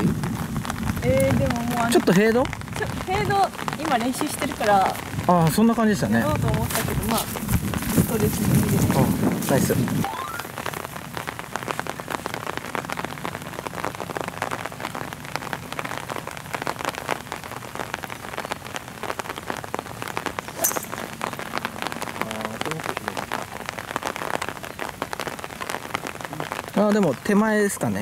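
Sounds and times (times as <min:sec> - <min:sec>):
heavy rain falling: 0:00.0 - 0:28.0
golf club striking ball: 0:20.6 - 0:21.0.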